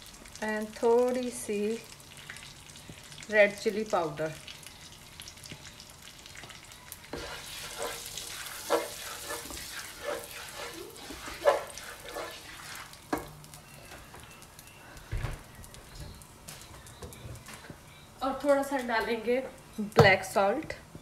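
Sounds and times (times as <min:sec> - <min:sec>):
spices sizzling in hot oil: 0:00.0 - 0:21.0
spatula scraping pan: 0:07.1 - 0:13.0.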